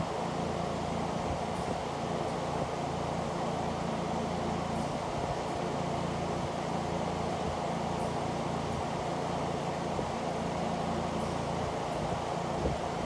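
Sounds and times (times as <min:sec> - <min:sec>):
electric fan whirring: 0:00.0 - 0:13.0.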